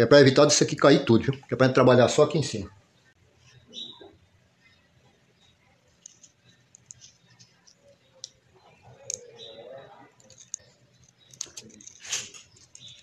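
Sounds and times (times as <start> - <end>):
small plastic clicks: 6.0 - 9.2, 10.2 - 13.0.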